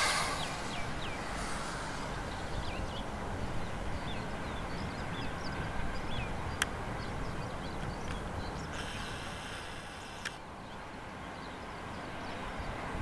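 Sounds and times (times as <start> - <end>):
low steady rumble: 0.0 - 8.7
small birds chirping: 0.0 - 12.9.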